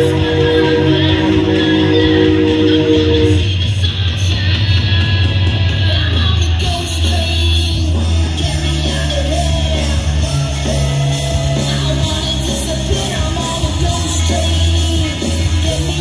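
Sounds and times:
low bass line: 0.0s - 3.7s
person singing: 0.0s - 16.0s
rock music: 0.0s - 16.0s.

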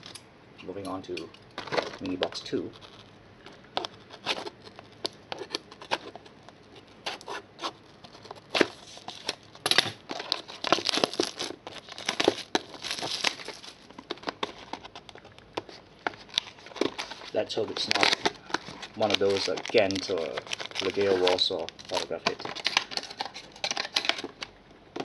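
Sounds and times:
wrapping crinkling and tearing: 1.6s - 24.6s
cardboard rustling and clicking: 7.1s - 25.0s.

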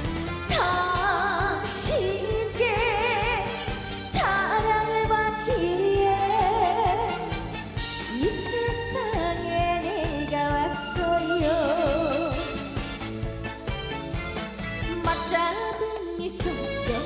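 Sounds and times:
band backing track with beat: 0.0s - 17.0s
woman singing into a microphone: 0.5s - 7.4s, 8.1s - 12.6s, 14.9s - 17.0s.

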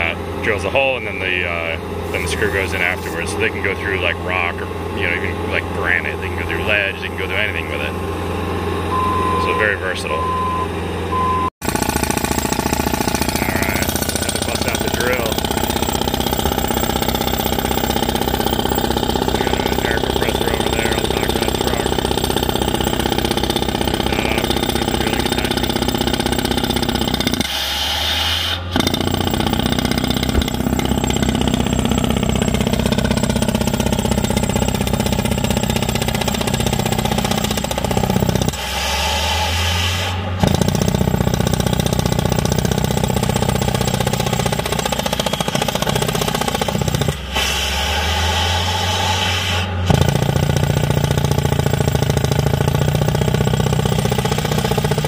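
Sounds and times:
rig engine running: 0.0s - 55.0s
drill pounding: 11.6s - 55.0s.

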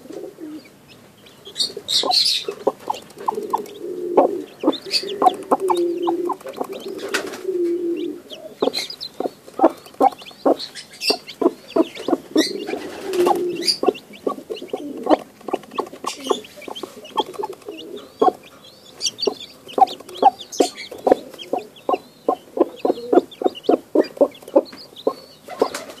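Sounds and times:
chicks peeping: 0.0s - 26.0s
hen clucking rapidly: 0.9s - 26.0s
low drawn-out hen calls: 1.7s - 15.2s.

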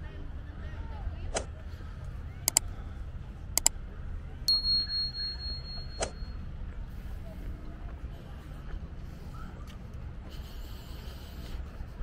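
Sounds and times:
sharp clicks: 2.5s - 2.7s, 3.6s - 3.8s
high bell-like ring: 4.5s - 6.5s.

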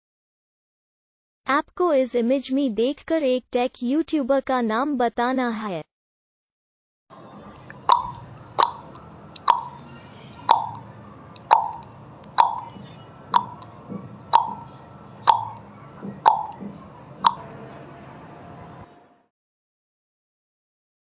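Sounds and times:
timer ticks with ringing tone: 7.7s - 9.8s, 10.4s - 10.8s, 11.4s - 14.6s, 15.2s - 15.6s, 16.2s - 17.4s.

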